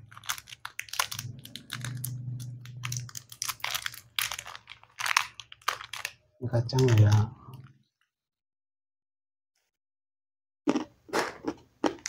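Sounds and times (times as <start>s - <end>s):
peanut shells cracking: 0.0s - 6.2s.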